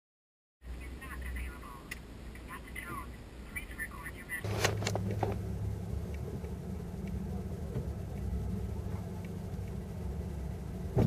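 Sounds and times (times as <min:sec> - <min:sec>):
car engine idling: 0:04.4 - 0:11.0.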